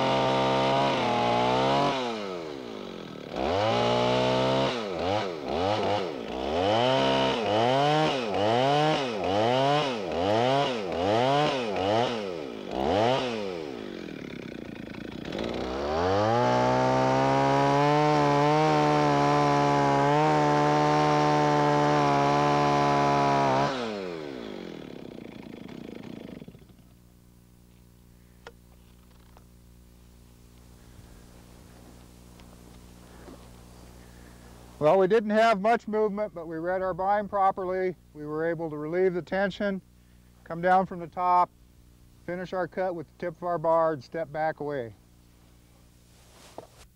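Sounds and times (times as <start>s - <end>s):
chainsaw revving and cutting: 0.0s - 27.0s.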